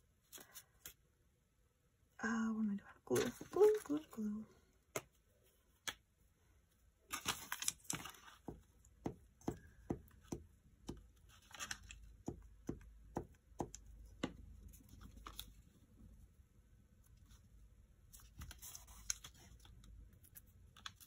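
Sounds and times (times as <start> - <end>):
paper rustling: 7.1 - 8.6, 18.1 - 21.0
fingers tapping on paper: 8.4 - 11.1, 12.2 - 14.4.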